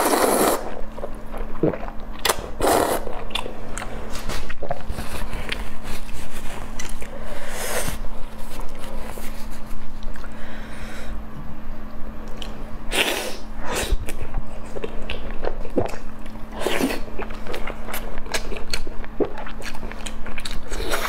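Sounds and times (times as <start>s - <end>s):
chewing and mouth clicks: 17.2s - 21.0s.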